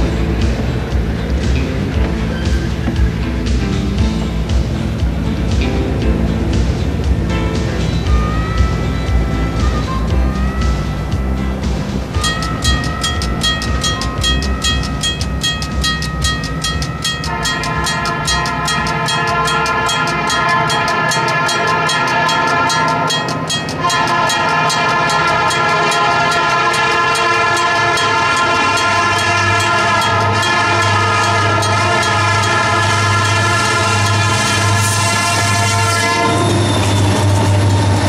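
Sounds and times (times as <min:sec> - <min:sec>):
locomotive engine rumble: 0:00.0 - 0:38.0
crossing warning bell ringing: 0:07.6 - 0:38.0
locomotive air horn: 0:17.1 - 0:38.0.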